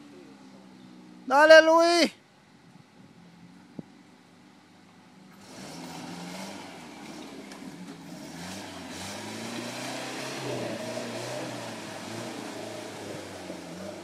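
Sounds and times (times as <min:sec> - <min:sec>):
car engine revving: 0:05.3 - 0:14.0
tyres churning mud and water: 0:05.4 - 0:14.0.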